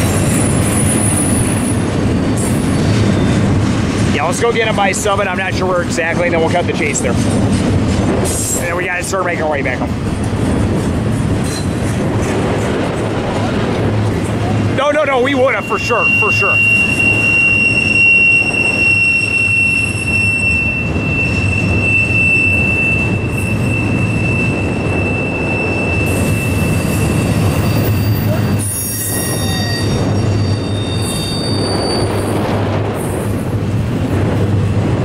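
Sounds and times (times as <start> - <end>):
train wheels rumbling on rail: 0.0 - 35.0
high wheel squeal: 14.8 - 32.4.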